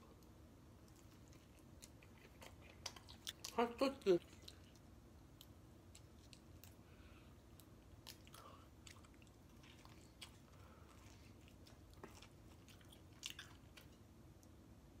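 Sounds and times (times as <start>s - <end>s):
chewing pizza crust: 0.0s - 14.6s.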